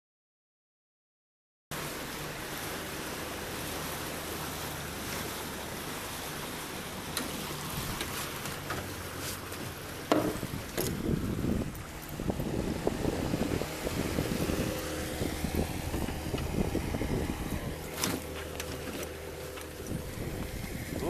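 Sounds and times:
outboard motor running: 0:01.7 - 0:21.0
wind and water rushing: 0:01.7 - 0:21.0.

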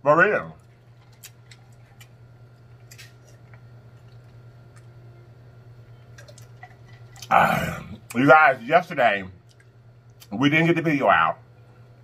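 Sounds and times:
steady low hum: 0:00.0 - 0:12.0
person swallowing: 0:07.2 - 0:08.1.

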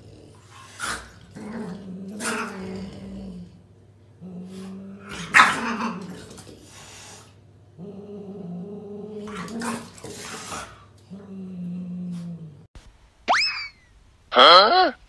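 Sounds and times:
animal growling: 0:00.0 - 0:06.8, 0:07.8 - 0:12.7.

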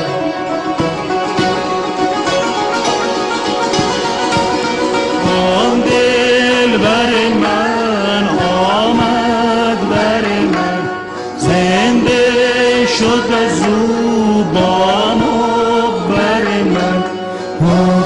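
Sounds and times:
long-necked lute: 0:00.0 - 0:18.0
santur: 0:00.0 - 0:18.0
man singing ornamented lines: 0:05.2 - 0:18.0.

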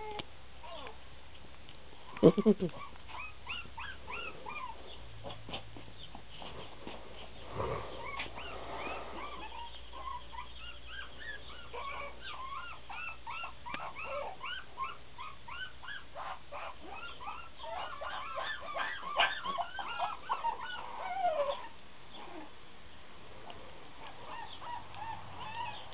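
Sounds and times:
puppies whimpering and yipping: 0:00.0 - 0:01.0, 0:02.1 - 0:22.6, 0:24.0 - 0:25.9.

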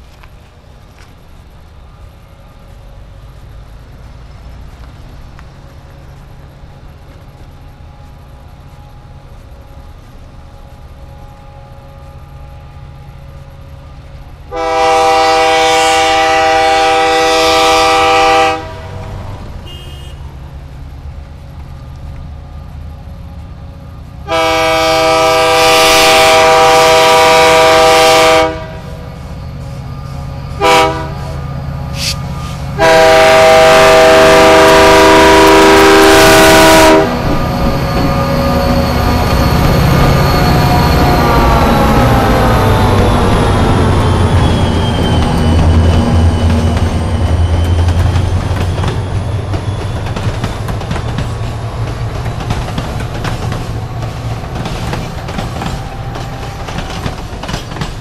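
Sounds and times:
locomotive air horn blasts: 0:14.5 - 0:19.0, 0:19.6 - 0:20.4, 0:24.2 - 0:29.1, 0:30.5 - 0:37.4.

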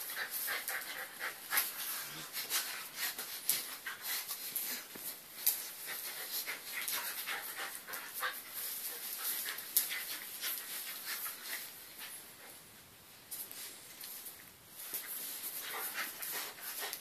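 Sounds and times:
dog panting: 0:00.0 - 0:04.9, 0:05.6 - 0:12.6, 0:15.4 - 0:17.0.

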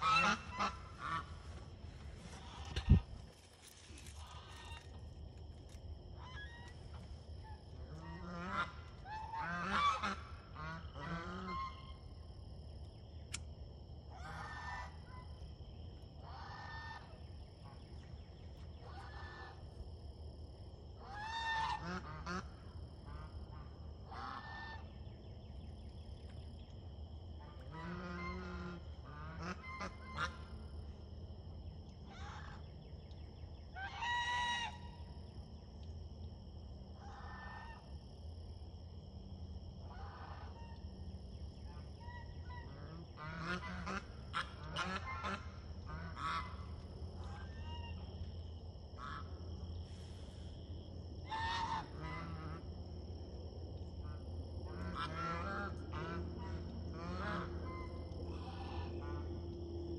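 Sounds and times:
geese honking: 0:00.0 - 0:01.6, 0:07.9 - 0:11.8, 0:27.7 - 0:30.5, 0:33.8 - 0:34.9, 0:42.0 - 0:46.6, 0:51.3 - 0:52.6, 0:54.8 - 0:59.3.

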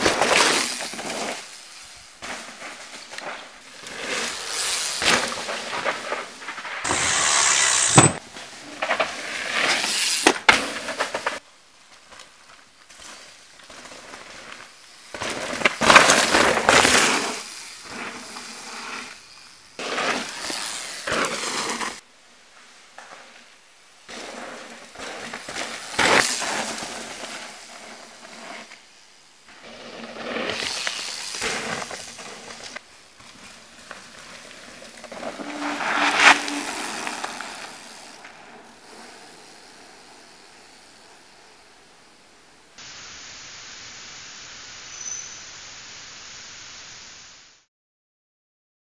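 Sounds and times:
bike tyres skidding over dirt: 0:00.0 - 0:42.8
bike chain and frame clattering: 0:30.0 - 0:41.1.

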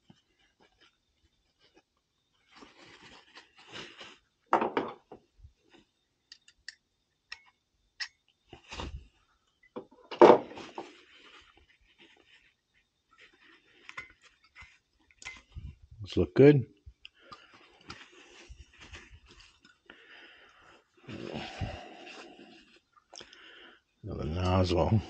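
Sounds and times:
small clicks and scrapes: 0:10.7 - 0:15.6.

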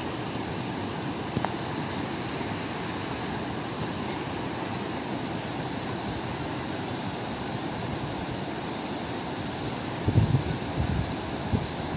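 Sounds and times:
water rushing over rocks: 0:00.0 - 0:11.9
wind buffeting microphone: 0:10.0 - 0:11.9.

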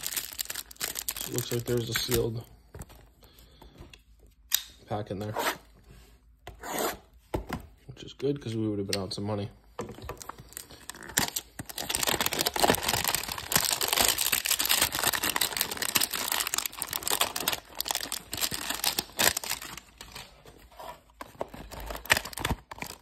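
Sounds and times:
cardboard box crinkling and rustling: 0:10.2 - 0:23.0.

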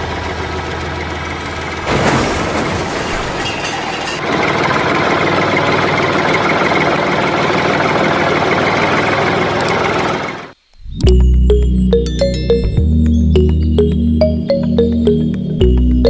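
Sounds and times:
tractor engine idling: 0:00.0 - 0:01.9, 0:04.2 - 0:10.6
music with chiming notes: 0:11.1 - 0:16.0.

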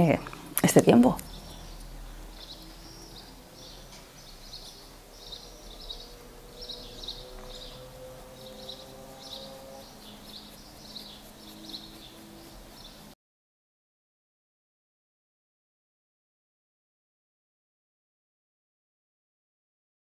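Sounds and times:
small birds chirping: 0:00.0 - 0:13.2.

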